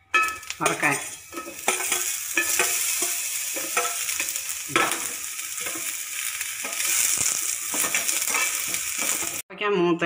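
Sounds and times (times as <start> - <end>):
vegetables sizzling in hot oil: 0.1 - 9.4.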